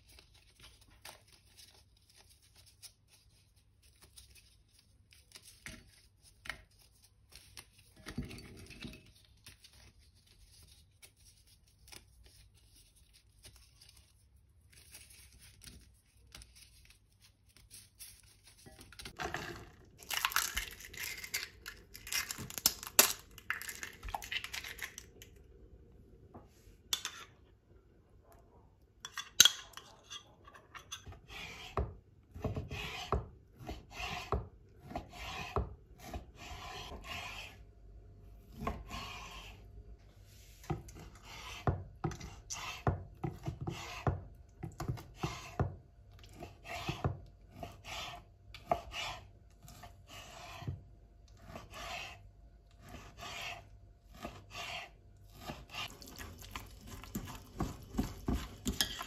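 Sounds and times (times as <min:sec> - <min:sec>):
knife cutting on wooden board: 0:52.8 - 0:56.0
spoon stirring in glass bowl: 0:54.6 - 0:59.0.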